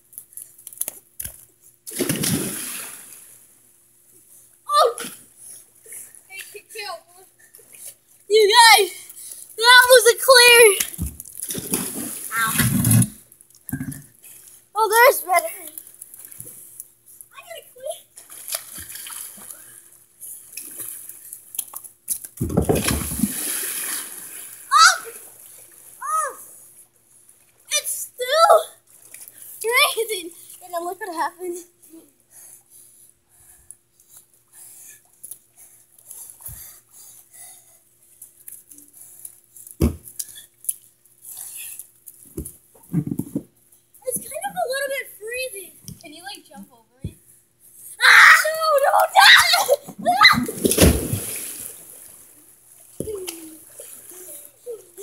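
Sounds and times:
faint steady hum: 0.0s - 55.0s
person diving into pool splash: 1.9s - 3.4s, 10.9s - 13.2s, 22.4s - 25.8s, 50.0s - 52.3s
disturbed water churning: 9.6s - 13.2s, 22.6s - 26.6s, 48.5s - 54.6s
water lapping: 50.3s - 55.0s.

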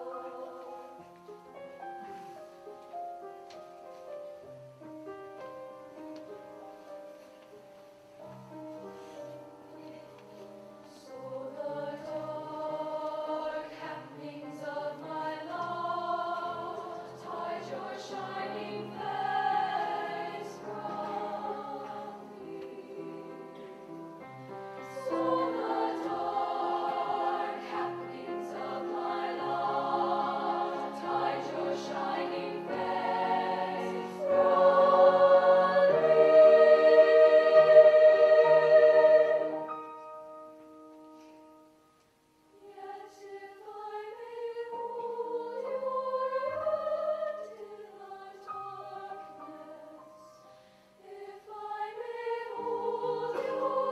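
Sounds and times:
women's choir singing: 0.0s - 1.1s, 10.8s - 40.0s, 42.6s - 53.9s
piano accompaniment: 0.0s - 42.0s.

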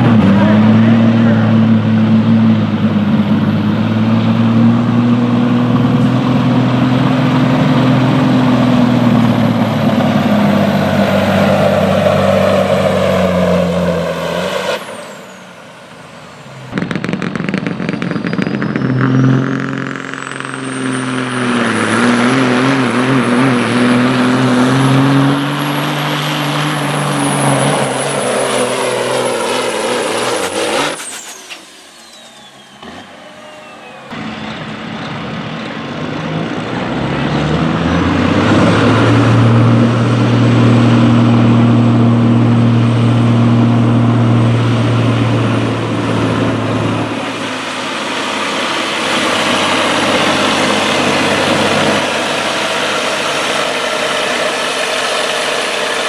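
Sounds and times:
diesel truck engines under load: 0.0s - 56.0s
high whine: 14.8s - 36.0s.

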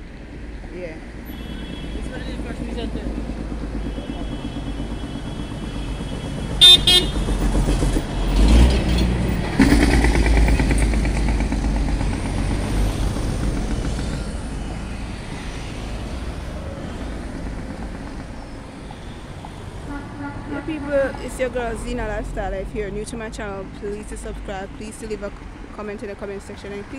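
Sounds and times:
cars passing: 0.0s - 26.9s
car horn toots: 1.2s - 2.3s, 3.8s - 7.5s, 19.8s - 21.2s.

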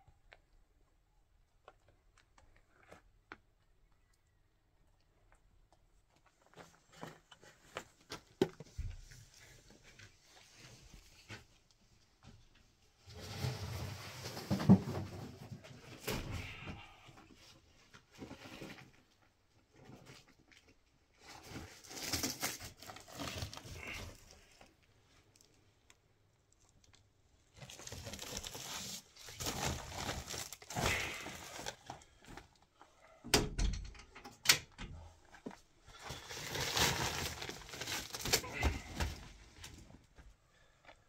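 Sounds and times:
rustling and crinkling: 1.5s - 4.2s, 5.0s - 33.2s, 35.2s - 41.0s.

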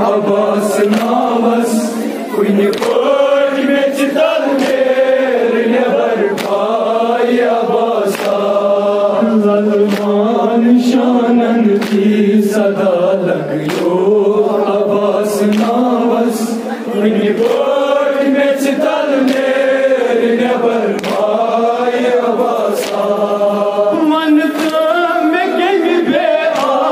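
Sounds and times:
group of men chanting: 0.0s - 26.9s
man chanting into microphone: 8.7s - 17.4s, 23.3s - 26.9s
hands beating chests: 26.1s - 26.9s.

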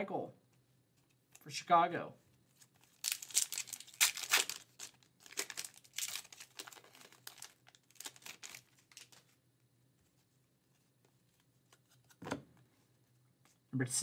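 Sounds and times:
foil wrapper tearing and crinkling: 2.9s - 9.2s.

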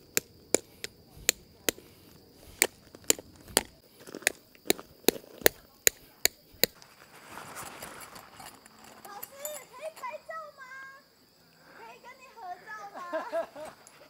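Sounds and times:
rock knocking tent stake into gravel: 0.1s - 9.5s.

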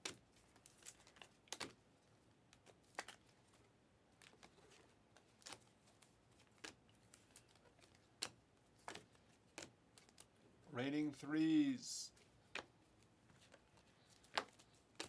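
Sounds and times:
cards snapping off a stack: 1.2s - 1.8s, 2.6s - 3.2s.

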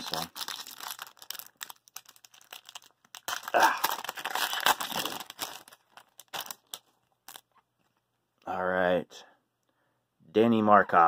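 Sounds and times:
foil wrapper tearing and crinkling: 0.0s - 7.4s.

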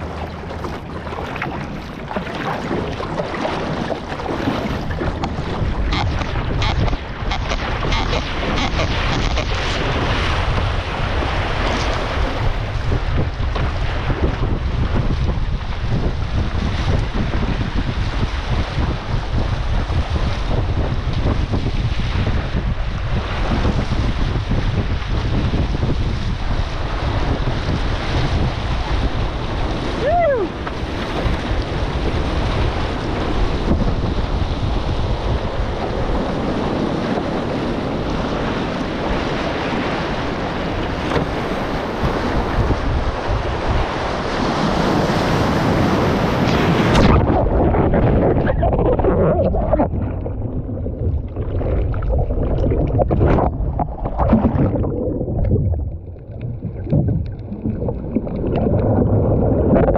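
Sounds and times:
water rushing and spraying: 0.0s - 14.2s, 44.1s - 59.9s
underwater churning and gurgling: 0.0s - 59.9s
wind buffeting microphone: 0.0s - 59.9s.

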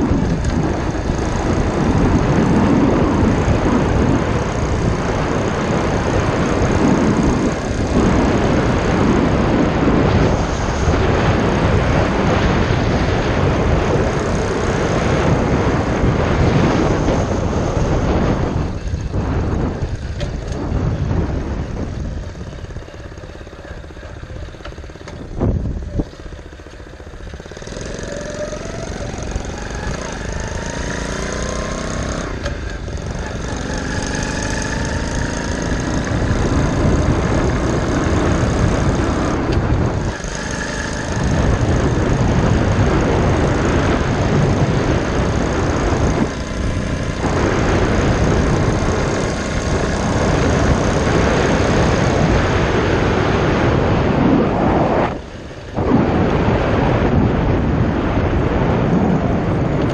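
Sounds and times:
small gas engine accelerating: 0.0s - 59.9s
wind noise on microphone: 0.0s - 59.9s.

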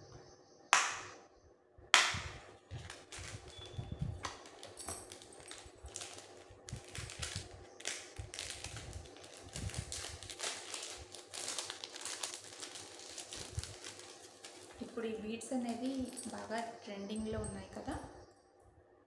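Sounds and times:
plastic packet crinkling: 2.7s - 16.6s.

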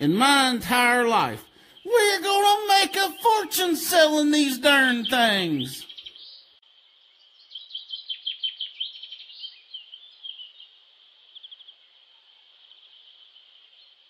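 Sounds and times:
birds chirping: 0.0s - 12.0s
steady high insect buzz: 9.2s - 14.0s.

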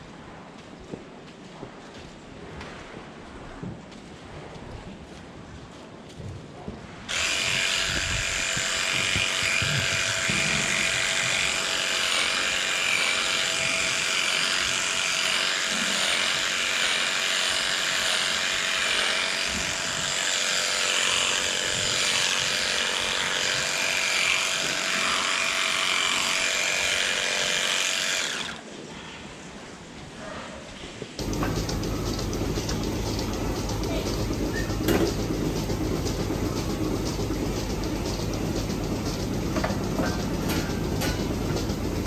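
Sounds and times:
electric clippers buzzing: 7.1s - 28.6s, 31.2s - 42.0s.

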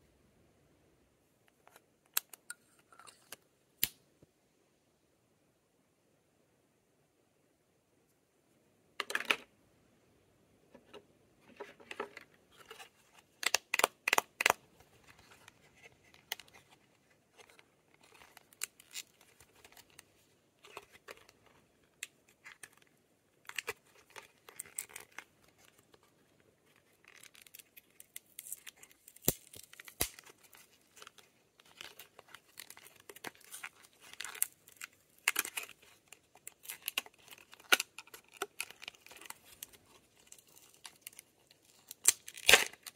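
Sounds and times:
packaging crinkling and tearing: 12.6s - 26.1s, 26.7s - 42.9s.

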